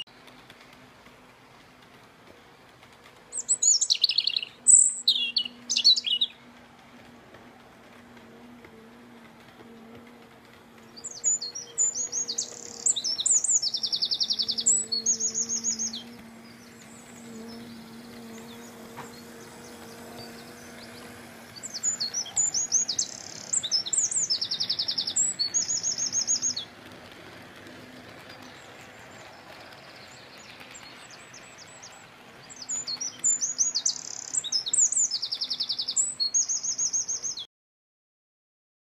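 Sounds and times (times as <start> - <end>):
faint low hum: 0.1 - 34.4
songbird trills and chirps: 3.3 - 6.4, 10.8 - 26.7, 28.4 - 37.4.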